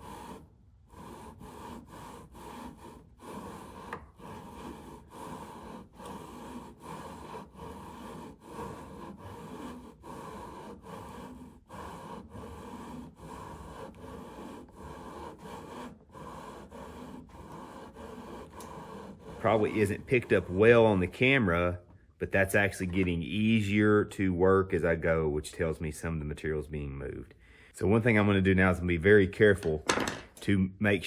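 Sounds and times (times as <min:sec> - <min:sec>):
gritty rubbing strokes: 0:00.0 - 0:24.0.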